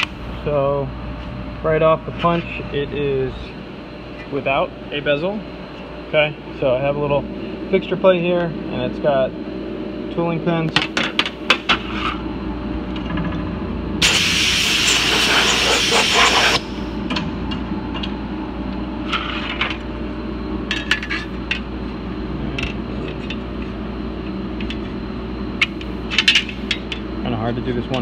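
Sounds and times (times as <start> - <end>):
shop hum: 0.0 - 28.0
air blast hissing: 14.0 - 16.9.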